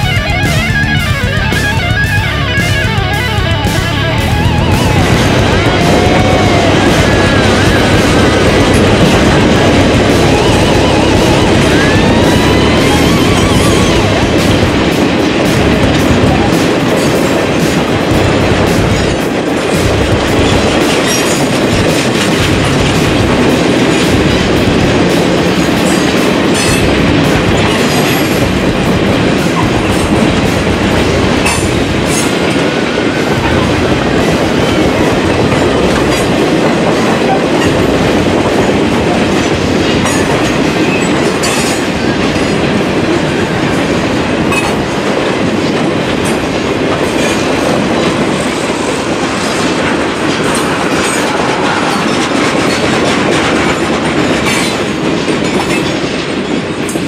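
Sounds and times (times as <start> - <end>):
freight train rumble: 0.0 - 57.0
wheels clacking over rail joints: 0.0 - 57.0.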